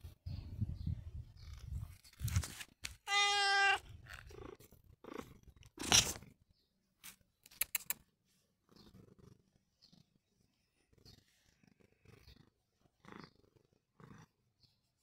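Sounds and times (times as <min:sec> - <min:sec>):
cat meowing: 0:03.0 - 0:03.9
cat purring: 0:04.1 - 0:06.4, 0:08.3 - 0:15.0.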